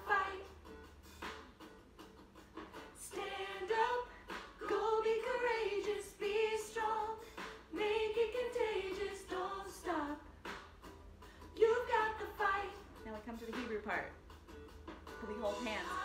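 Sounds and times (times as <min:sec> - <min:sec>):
woman singing: 0:00.0 - 0:00.5, 0:11.6 - 0:13.7, 0:15.5 - 0:16.0.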